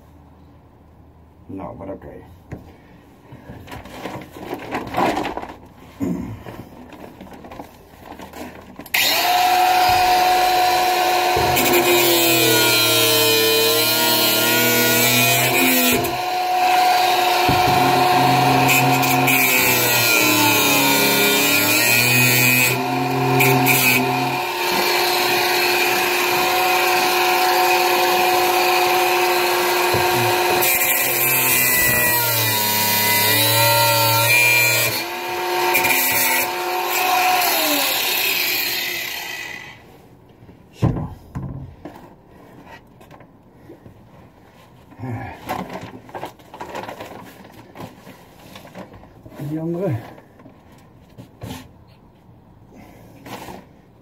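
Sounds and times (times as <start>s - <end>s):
power tool cutting bolts: 8.9s - 39.8s
knocks: 17.4s - 18.4s.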